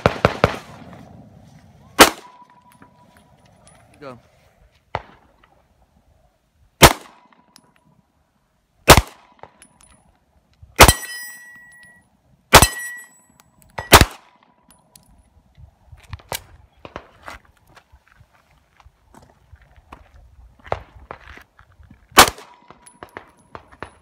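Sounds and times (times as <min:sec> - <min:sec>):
pistol shots: 0:02.0 - 0:02.6, 0:06.8 - 0:07.4, 0:08.8 - 0:09.6, 0:10.8 - 0:11.5, 0:12.5 - 0:13.1, 0:13.8 - 0:14.4, 0:22.2 - 0:24.0
steel targets ringing: 0:10.8 - 0:12.0, 0:12.6 - 0:14.0.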